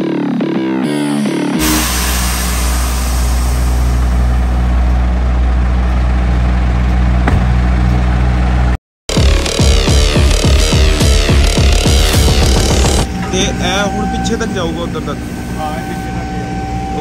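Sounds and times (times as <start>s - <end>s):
diesel truck engine idling: 2.9s - 8.8s.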